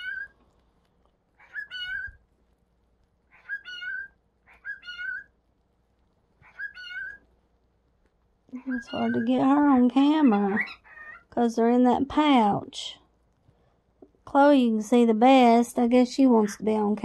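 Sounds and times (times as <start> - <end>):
animal calling: 0.0 - 0.4, 1.4 - 2.2, 3.3 - 5.4, 6.4 - 7.3, 8.5 - 11.4.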